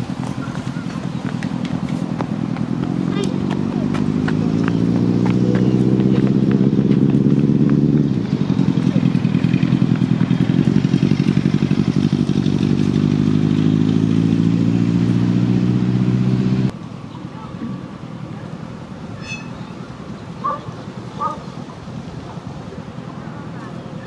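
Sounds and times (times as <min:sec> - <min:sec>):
engine running and throbbing: 0:00.0 - 0:17.0.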